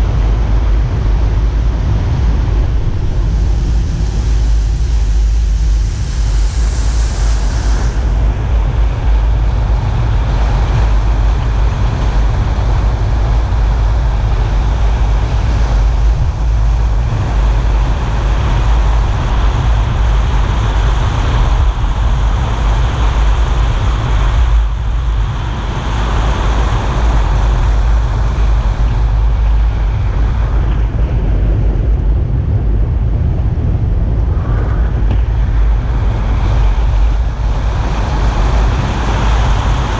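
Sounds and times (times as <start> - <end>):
wind on microphone: 0.0 - 39.9
tyre hiss on wet road: 2.7 - 30.6.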